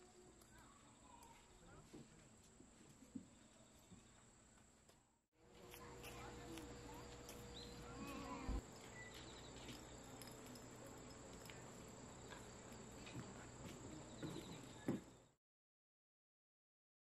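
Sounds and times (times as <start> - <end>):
crickets trilling: 5.6 - 15.3.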